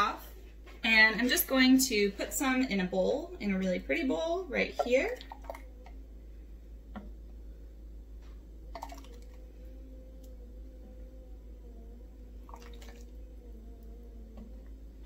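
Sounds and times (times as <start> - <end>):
faint steady hum: 0.0 - 15.0
liquid pouring: 5.1 - 5.7, 8.7 - 9.5, 12.4 - 13.2.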